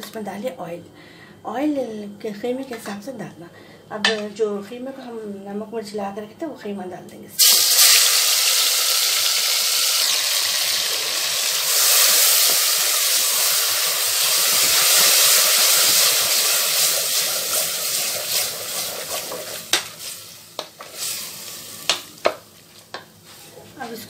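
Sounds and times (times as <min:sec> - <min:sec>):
meat sizzling in hot oil: 0:07.4 - 0:22.4.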